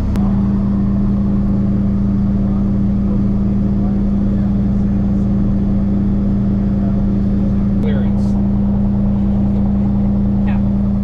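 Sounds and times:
aircraft engine and propeller drone: 0:00.0 - 0:11.0.

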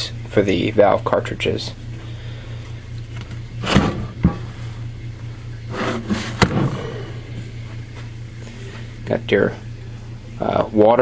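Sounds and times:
metal scraping on workbench: 0:05.7 - 0:06.7.

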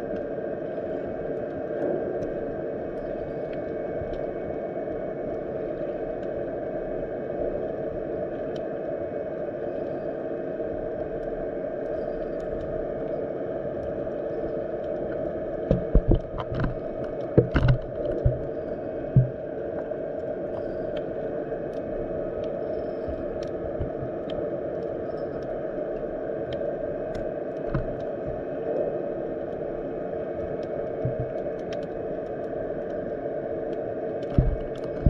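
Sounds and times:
underwater rushing water: 0:10.7 - 0:35.0
low underwater thuds and knocks: 0:15.7 - 0:18.4.

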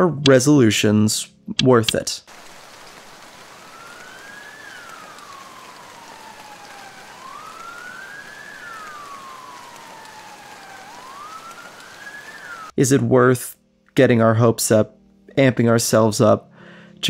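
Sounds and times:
heavy rain hissing: 0:02.3 - 0:12.7
emergency siren wailing: 0:03.2 - 0:12.8.

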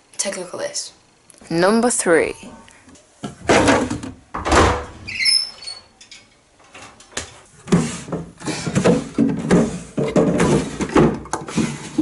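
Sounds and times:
wooden drawers sliding open and shut: 0:06.6 - 0:12.0.

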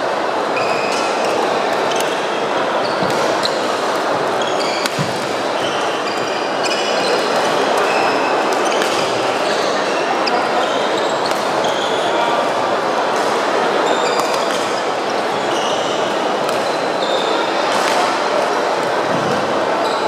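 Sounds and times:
sports hall din: 0:00.0 - 0:20.0
rackets striking shuttlecocks: 0:03.0 - 0:05.6
shoes squeaking on court floor: 0:04.4 - 0:12.1.

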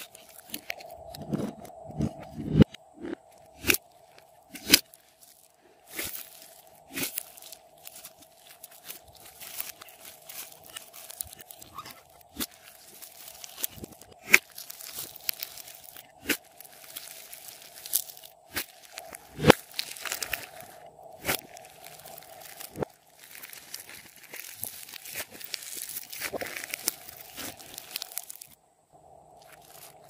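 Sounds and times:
slime squishing with pops: 0:05.9 - 0:28.6.

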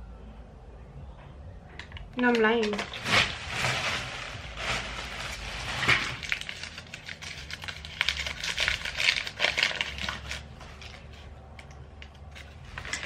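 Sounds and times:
paper crinkling: 0:02.6 - 0:11.3, 0:12.2 - 0:13.0.

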